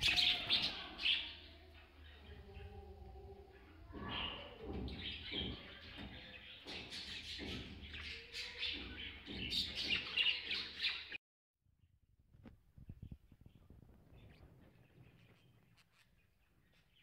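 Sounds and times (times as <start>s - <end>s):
budgerigars chattering and chirping: 0.0s - 1.4s.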